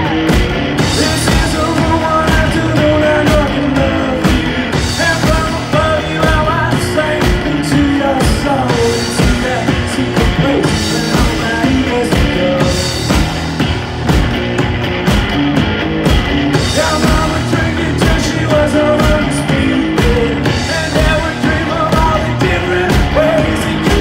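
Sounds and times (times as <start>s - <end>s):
drum kit beat: 0.0s - 24.0s
electric guitar: 0.0s - 24.0s
man singing: 0.8s - 13.2s, 16.6s - 24.0s.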